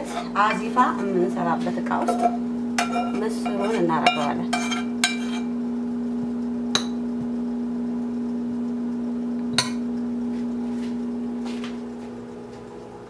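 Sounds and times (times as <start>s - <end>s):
steady low hum: 0.0s - 13.0s
metal spoon scraping saucepan: 2.0s - 5.6s.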